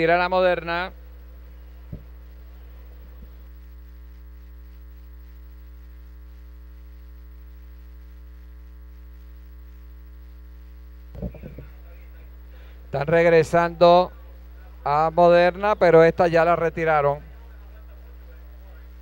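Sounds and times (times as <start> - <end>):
electrical mains hum: 0.0 - 19.0.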